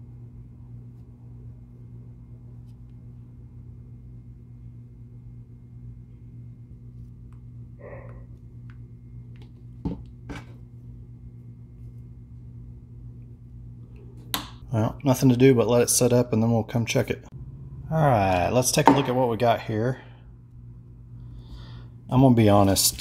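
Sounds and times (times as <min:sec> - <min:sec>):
low room hum: 0:00.0 - 0:23.0
plastic cup knocking on workbench: 0:09.8 - 0:10.4, 0:18.8 - 0:19.2.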